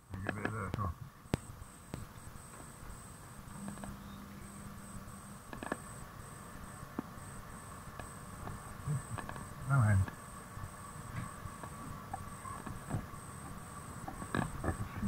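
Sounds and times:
low hum: 0.0 - 15.0
sharp clicks and creaks: 0.1 - 2.1, 3.6 - 4.0, 5.5 - 5.9, 7.9 - 10.2, 11.1 - 15.0
faint high-pitched tone: 2.4 - 14.0.

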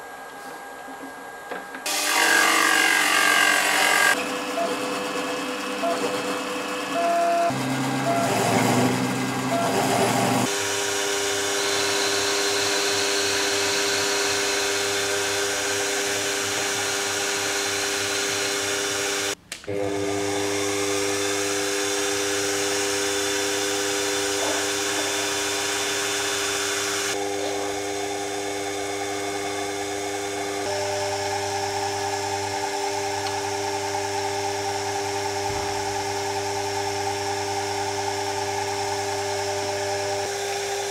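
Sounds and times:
milling spindle cutting brass: 1.9 - 4.9
lathe drill boring into brass: 1.9 - 40.9.

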